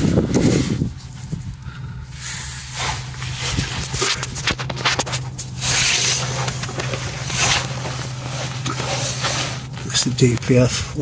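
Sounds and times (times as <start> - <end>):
steady low hum: 0.0 - 11.0
clicks and crunches: 2.8 - 10.5
camera handling rustle: 3.2 - 10.4.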